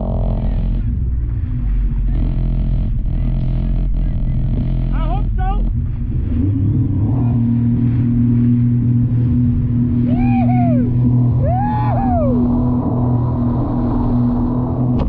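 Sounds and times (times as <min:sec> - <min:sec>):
watercraft engine running: 0:00.0 - 0:15.0
rising falling tones: 0:06.6 - 0:15.0.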